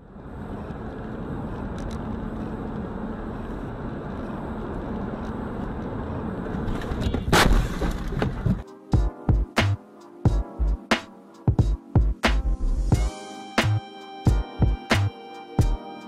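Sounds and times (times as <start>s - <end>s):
car road and engine noise: 0.0s - 8.9s
car crash: 6.7s - 8.6s.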